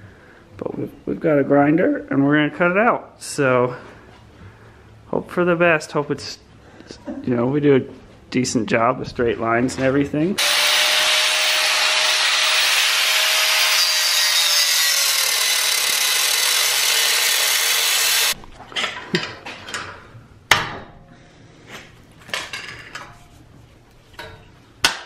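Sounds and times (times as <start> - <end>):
angle grinder cutting metal: 10.4 - 18.4.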